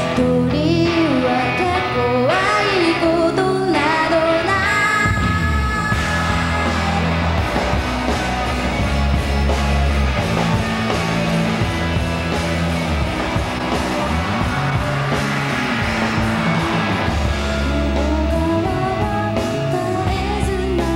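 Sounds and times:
female vocal: 0.0s - 6.0s, 17.9s - 20.9s
rock band playing: 0.0s - 20.9s.

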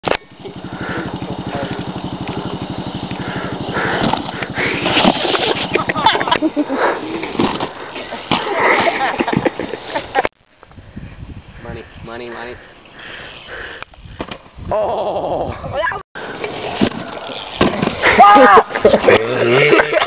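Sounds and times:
small engine running: 0.2s - 6.3s
people calling out: 18.0s - 18.8s.

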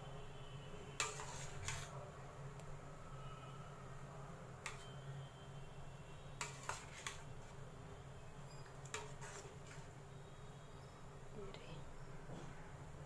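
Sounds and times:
ladle stirring thick pudding: 1.0s - 2.0s, 6.4s - 7.7s, 8.5s - 10.0s.

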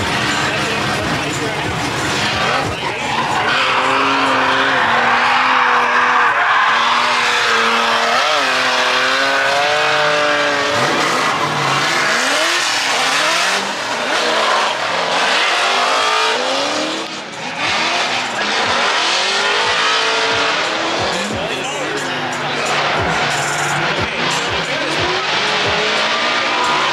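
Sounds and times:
car engine at full throttle: 0.0s - 26.9s
tyres squealing: 2.1s - 16.9s.

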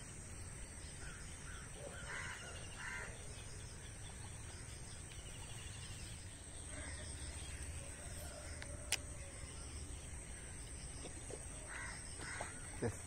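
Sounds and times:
crow cawing faintly: 1.0s - 3.2s, 11.4s - 13.0s.

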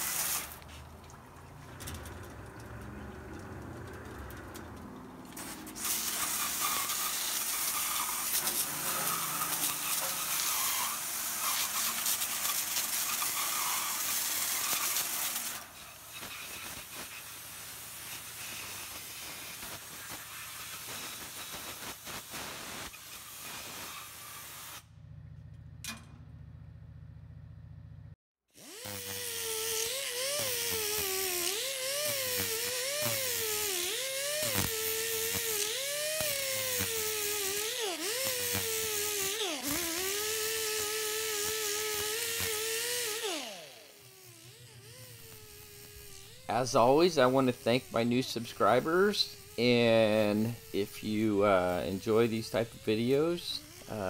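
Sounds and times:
water spray hissing: 0.0s - 1.0s, 5.3s - 24.8s, 44.6s - 54.0s
rotary tool whining: 1.8s - 21.8s, 28.6s - 54.0s.

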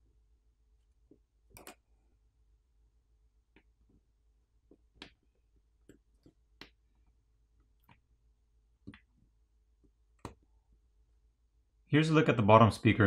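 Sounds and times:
small parts clicking and tapping: 1.1s - 1.8s.

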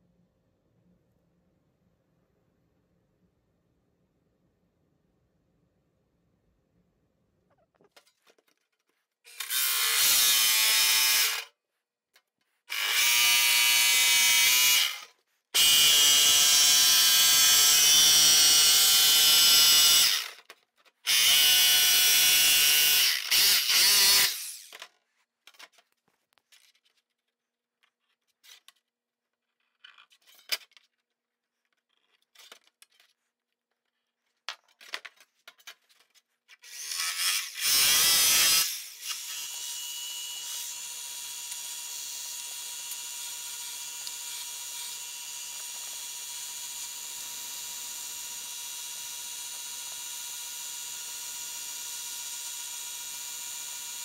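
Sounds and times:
jigsaw cutting sheet metal: 9.2s - 11.6s, 12.6s - 25.7s, 36.5s - 54.0s.

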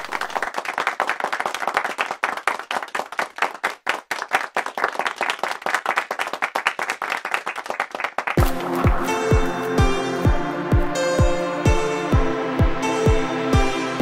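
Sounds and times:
hands clapping: 0.0s - 10.3s.

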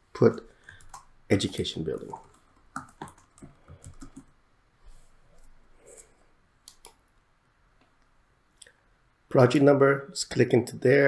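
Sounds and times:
keyboard typing: 0.7s - 4.4s.

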